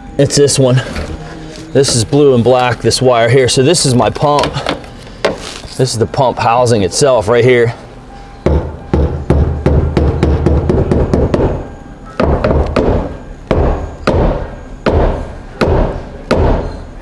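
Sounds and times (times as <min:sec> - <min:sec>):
hand tool knocking on metal: 0:08.4 - 0:11.6.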